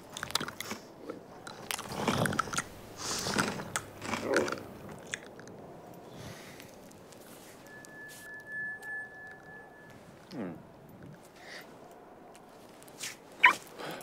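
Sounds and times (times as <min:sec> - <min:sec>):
camel chewing: 0:00.0 - 0:07.6.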